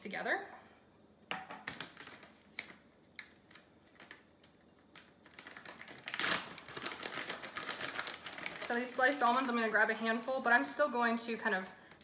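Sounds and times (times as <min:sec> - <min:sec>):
plastic bag rustling open: 0:03.5 - 0:09.8.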